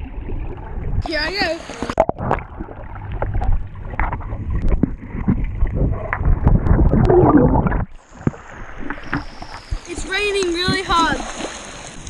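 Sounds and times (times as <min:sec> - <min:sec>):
muffled underwater churning: 0:00.0 - 0:12.0
underwater bubbles: 0:00.0 - 0:12.0
underwater knocks: 0:01.8 - 0:09.8.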